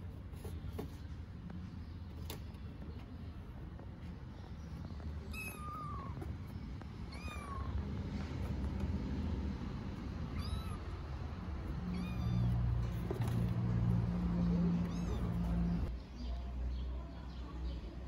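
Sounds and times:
kitten meowing: 0:05.3 - 0:06.2, 0:07.1 - 0:07.9, 0:10.3 - 0:11.0, 0:11.7 - 0:12.8, 0:14.7 - 0:15.9.

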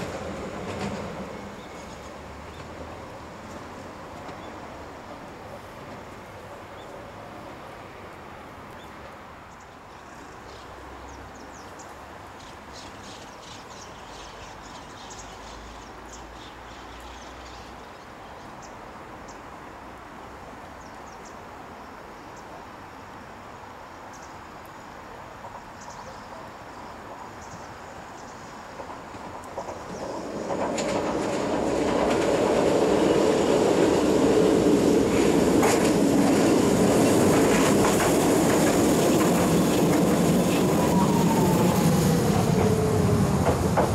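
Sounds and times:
approaching train rumble: 0:00.0 - 0:09.1, 0:27.0 - 0:43.9.

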